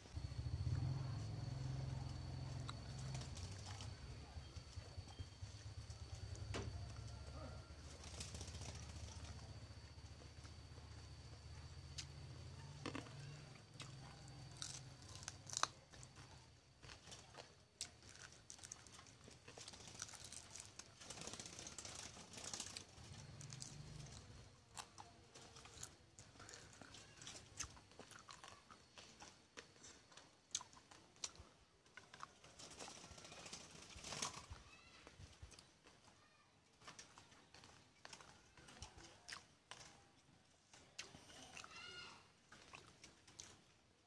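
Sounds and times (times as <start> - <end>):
small clicks and crackles: 2.1 - 43.8
person chewing and crunching: 12.8 - 21.6, 22.4 - 32.3, 39.1 - 40.0.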